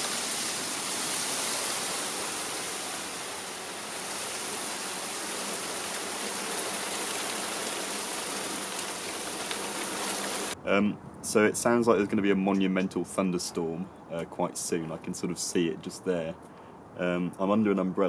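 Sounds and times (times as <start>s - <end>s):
heavy rain: 0.0s - 10.6s.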